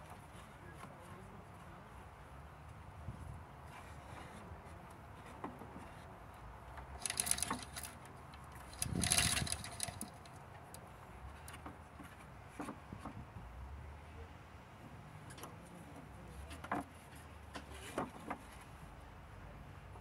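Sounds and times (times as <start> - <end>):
hoist chain metallic rattles: 7.0 - 10.4.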